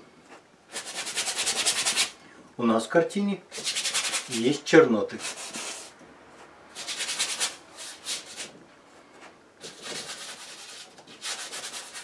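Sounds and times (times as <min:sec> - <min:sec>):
bristle brush scrubbing canvas: 0:06.8 - 0:08.5, 0:09.6 - 0:12.0.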